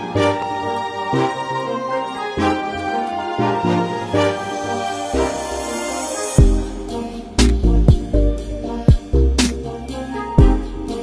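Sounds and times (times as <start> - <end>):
keyboard background music: 0.0 - 11.0
deep sustained bass: 6.4 - 9.8.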